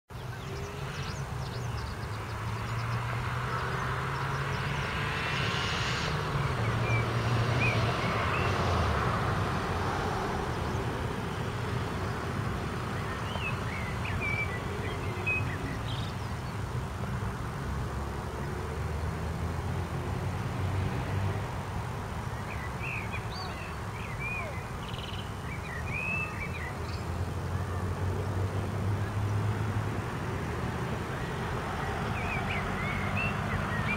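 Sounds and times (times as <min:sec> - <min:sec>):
road traffic rumble: 0:00.1 - 0:33.9
vehicle passing: 0:00.3 - 0:33.9
bird chirps: 0:12.9 - 0:16.6, 0:22.4 - 0:27.2, 0:32.1 - 0:33.9.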